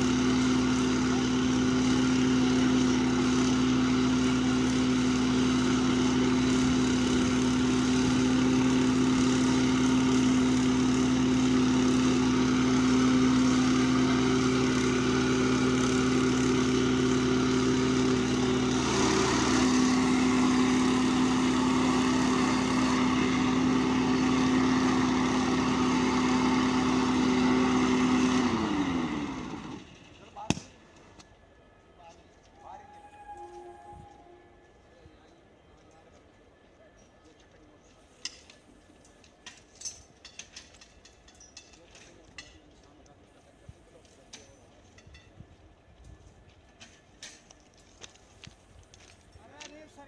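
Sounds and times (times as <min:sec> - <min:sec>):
small engine running: 0:00.0 - 0:31.2.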